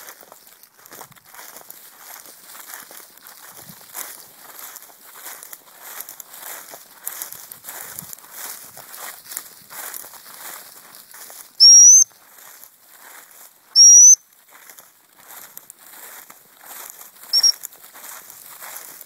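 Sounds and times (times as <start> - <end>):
footsteps crunching through stubble: 0.0 - 19.0
dog whistle blasts: 11.6 - 12.1, 13.8 - 14.2, 17.3 - 17.6.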